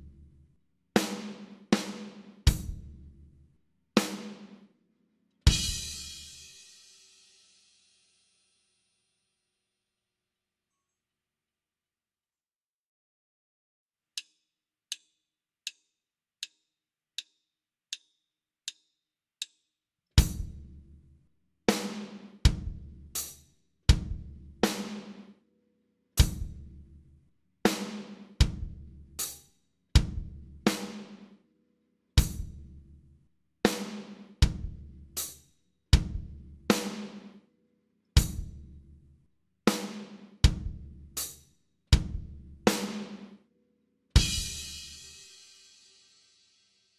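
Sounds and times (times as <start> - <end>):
slow drum kit rhythm: 1.0 - 2.9, 4.0 - 4.6, 5.5 - 7.1, 20.2 - 20.8, 21.7 - 25.3, 26.2 - 26.7, 27.7 - 29.4, 30.0 - 31.3, 32.2 - 32.7, 33.7 - 35.4, 36.0 - 37.4, 38.2 - 38.6, 39.7 - 41.4, 42.0 - 43.3, 44.2 - 45.8.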